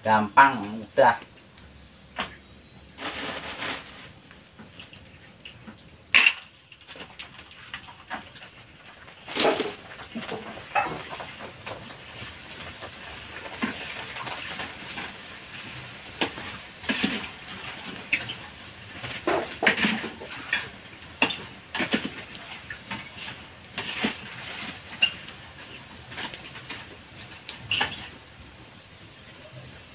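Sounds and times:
crackers sizzling in hot oil: 0.0 - 29.9.

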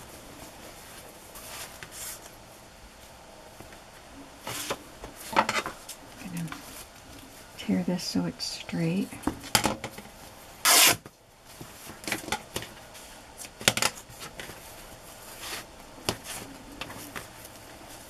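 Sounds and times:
fabric ripping: 10.6 - 11.0.

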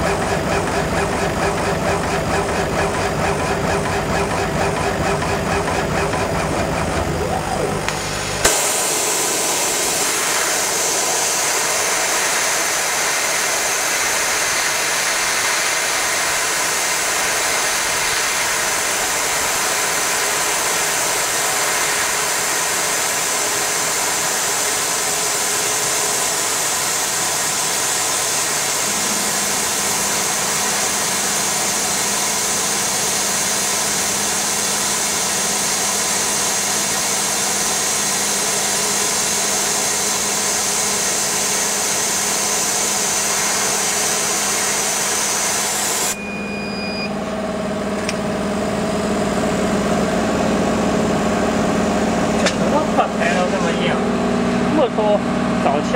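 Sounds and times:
laser cutter hissing: 0.0 - 47.2.

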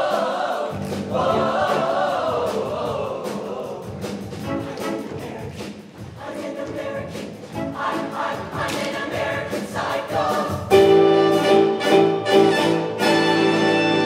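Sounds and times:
show choir singing: 0.0 - 14.0
live band playing: 0.6 - 6.1, 7.2 - 9.4, 10.2 - 14.0
brass chord: 10.7 - 14.0.

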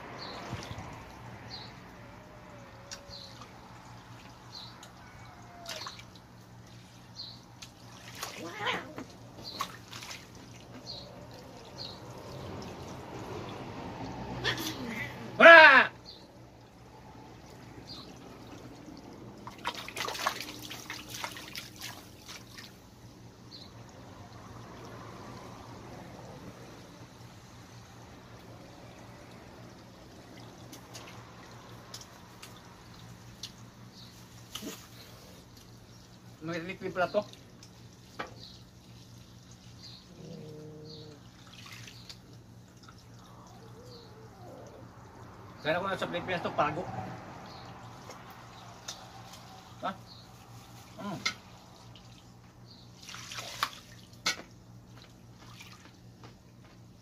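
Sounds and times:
water trickling: 0.0 - 57.0
small splashes and clicks: 2.8 - 13.7, 17.4 - 22.9, 28.3 - 36.3, 37.2 - 39.9, 41.2 - 44.0, 47.7 - 49.8, 50.6 - 56.8.

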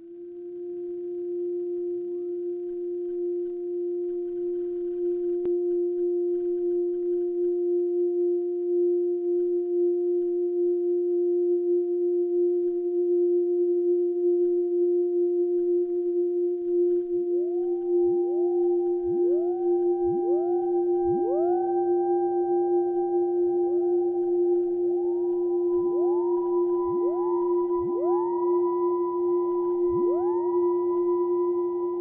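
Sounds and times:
low electronic drone: 13.0 - 32.0
rising electronic tone: 17.4 - 32.0.

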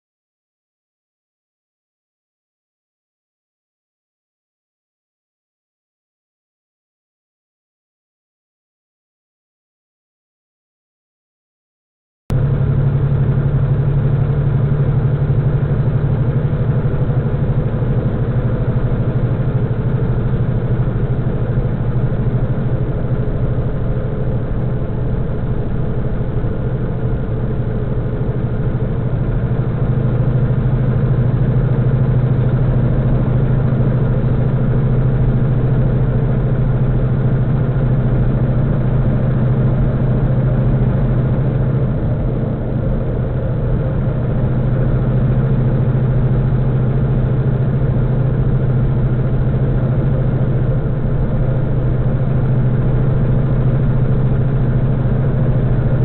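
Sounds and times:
road noise: 12.3 - 56.0
truck engine drone: 12.3 - 56.0.

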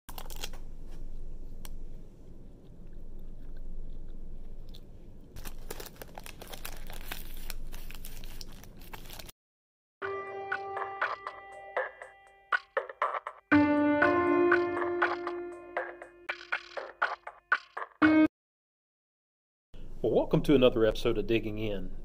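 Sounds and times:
plastic wrapper crinkling and tearing: 0.1 - 0.7, 5.4 - 9.4
chewing: 1.4 - 6.5
synthesizer music: 10.0 - 18.3.

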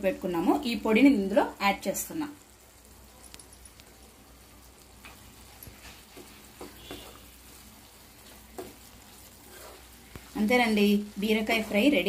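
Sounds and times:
soft sizzle: 0.0 - 12.0
spatula scraping pan: 5.7 - 12.0.

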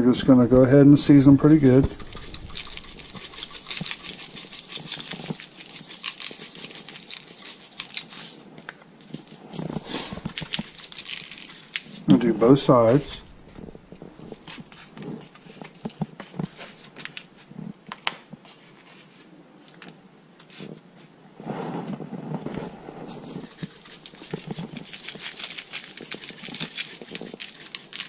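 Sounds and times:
seasoning shaker rattling: 1.4 - 8.4, 9.0 - 12.1, 23.1 - 28.0
hands handling fish on foam plate: 22.5 - 28.0.

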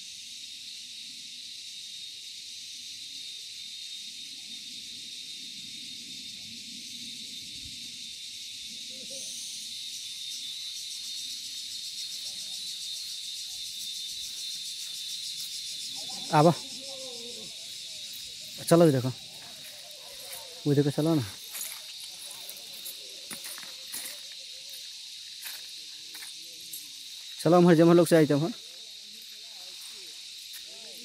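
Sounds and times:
shrill insect chorus: 0.0 - 31.0.

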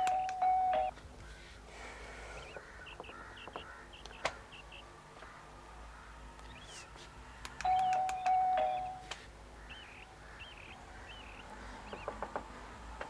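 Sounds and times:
birds chirping: 0.0 - 13.0
sharp click: 7.4 - 8.4.

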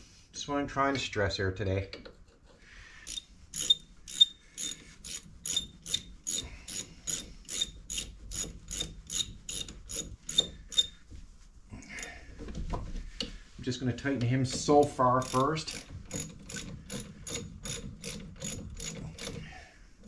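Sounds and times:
ratchet wrench clicking: 3.1 - 10.9, 15.2 - 19.5.

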